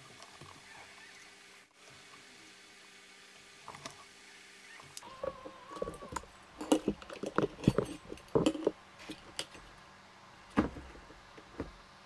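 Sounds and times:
handling clicks and knocks: 0:05.0 - 0:09.7.

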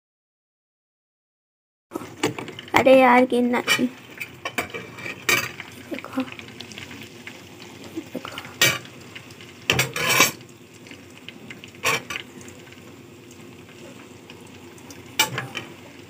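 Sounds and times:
hot ghee sizzling: 0:02.0 - 0:16.0
metal pan and strainer clinking: 0:09.7 - 0:10.4, 0:15.2 - 0:15.7.

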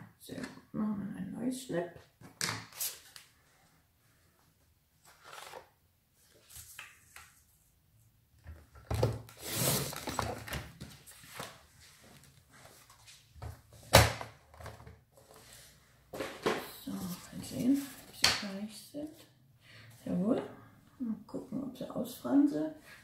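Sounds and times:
paper rustling: 0:05.0 - 0:07.6.

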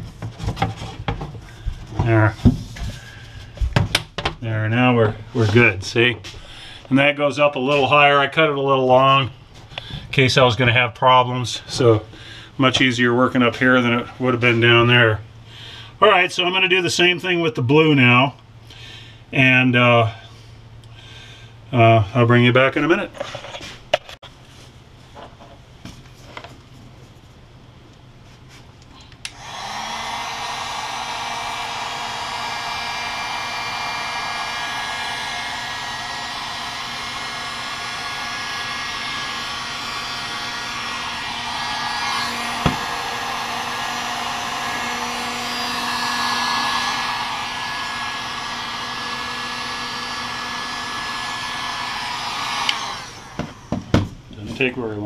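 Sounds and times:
heat gun blowing: 0:29.2 - 0:54.0.

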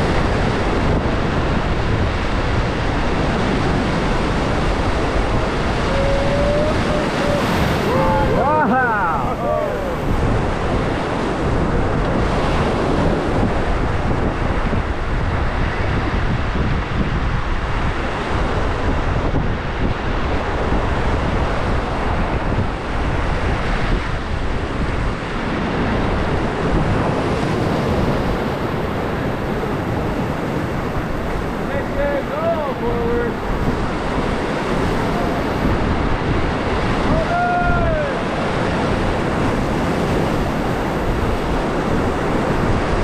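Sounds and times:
river water rushing: 0:00.0 - 0:13.8, 0:25.2 - 0:43.0
wind buffeting microphone: 0:00.0 - 0:43.0.

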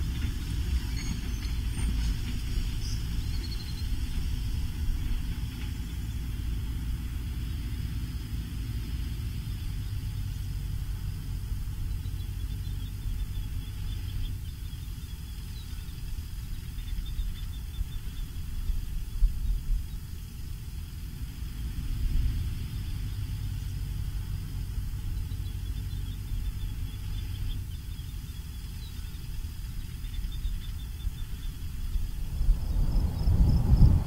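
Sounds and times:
distant birds chirping: 0:00.0 - 0:21.0, 0:22.4 - 0:34.0
low steady rumble: 0:00.0 - 0:34.0.

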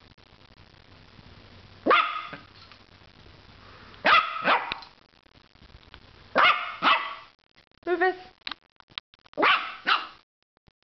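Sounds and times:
small dog barking: 0:01.8 - 0:02.5, 0:04.0 - 0:04.8, 0:06.3 - 0:07.3, 0:09.4 - 0:10.2.

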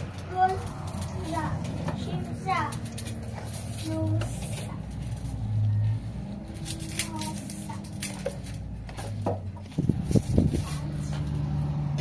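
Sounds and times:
small child's voice: 0:00.2 - 0:03.1, 0:03.7 - 0:05.0, 0:06.7 - 0:08.4.

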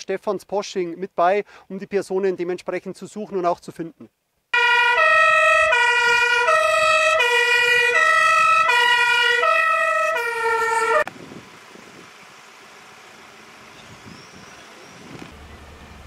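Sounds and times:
two-tone fire engine siren: 0:04.6 - 0:11.1.

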